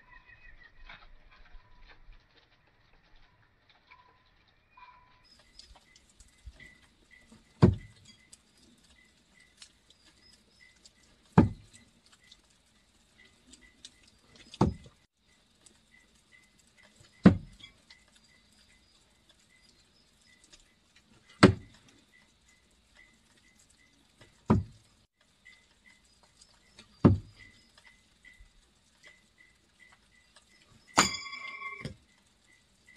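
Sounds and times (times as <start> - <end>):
faint repeating chirp: 25.4 - 32.9.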